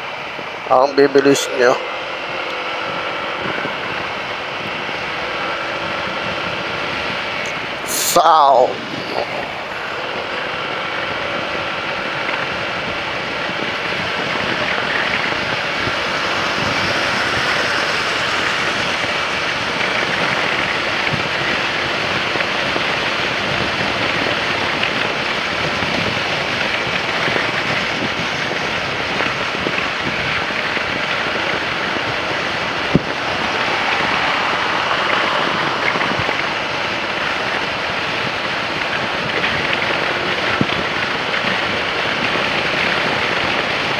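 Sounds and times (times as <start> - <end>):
motorcycle engine and road noise: 0.0 - 43.9
wind noise on microphone: 0.0 - 43.9.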